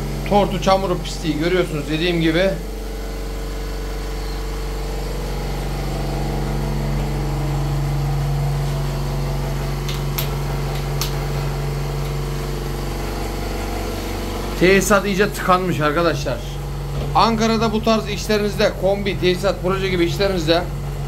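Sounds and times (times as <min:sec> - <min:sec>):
flushing machine compressor running: 0:00.0 - 0:21.0.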